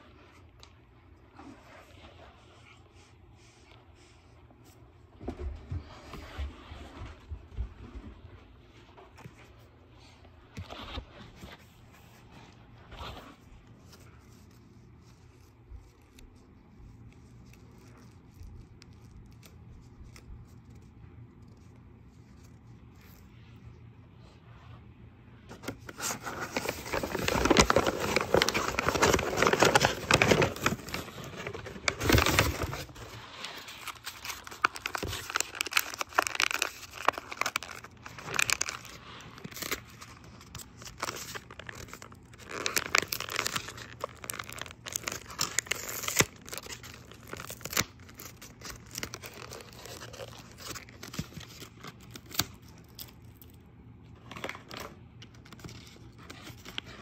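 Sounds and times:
paper crinkling and tearing: 0:12.9 - 0:23.3, 0:25.5 - 0:57.0.

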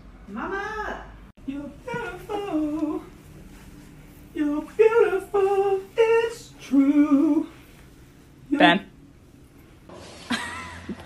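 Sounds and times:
person singing long held notes: 0:04.3 - 0:07.6.

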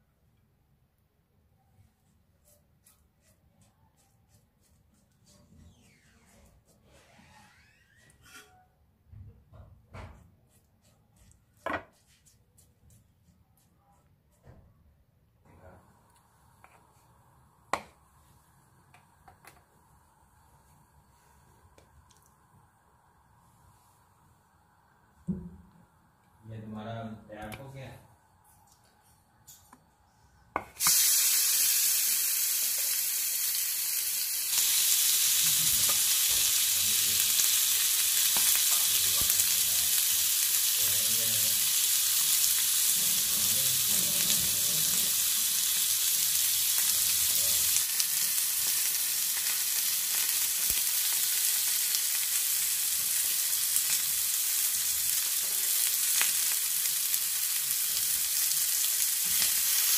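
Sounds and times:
chicken sizzling on grill pan: 0:30.8 - 0:59.9.

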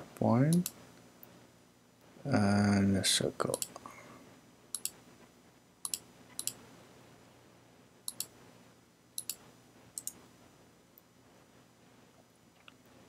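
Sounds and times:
faint room hum: 0:00.0 - 0:13.0
computer mouse clicking: 0:04.7 - 0:05.0, 0:05.8 - 0:06.6, 0:08.1 - 0:08.3, 0:09.2 - 0:09.4, 0:10.0 - 0:10.2.

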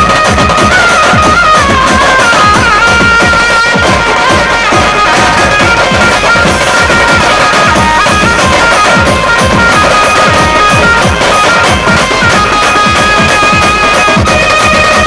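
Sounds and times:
lead melody: 0:00.0 - 0:15.0
marching drums beating: 0:00.0 - 0:15.0.

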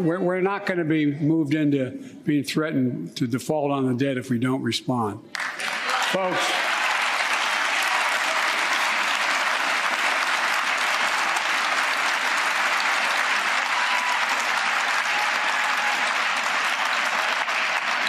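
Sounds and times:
large crowd applauding: 0:05.3 - 0:18.0.

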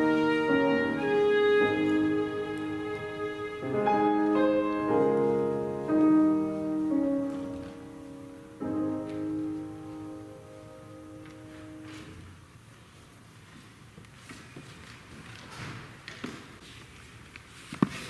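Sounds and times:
violin: 0:00.0 - 0:07.9
upright piano: 0:00.0 - 0:12.4.

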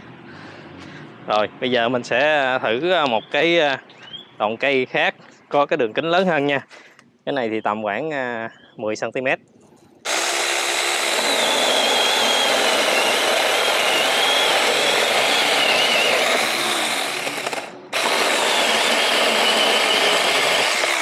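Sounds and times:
chainsaw motor whine cutting wood: 0:10.1 - 0:21.0.

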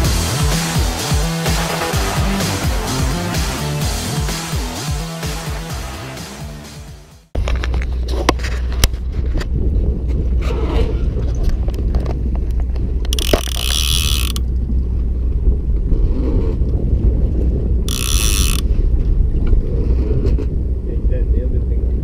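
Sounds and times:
low rumble: 0:00.0 - 0:22.0
fishing reel clicker buzzing: 0:13.1 - 0:14.4, 0:17.9 - 0:18.6.

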